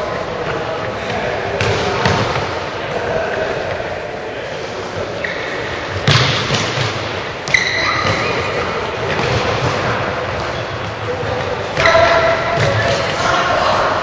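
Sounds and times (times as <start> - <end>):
shoe squeaks: 5.2 - 5.8, 7.5 - 8.2
ball thumping: 6.0 - 8.2.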